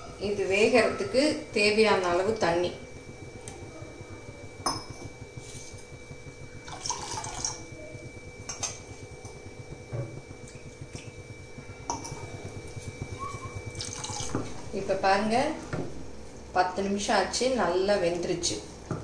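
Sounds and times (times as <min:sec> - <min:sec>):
water pouring into saucepan: 0:06.6 - 0:07.7, 0:13.7 - 0:14.6.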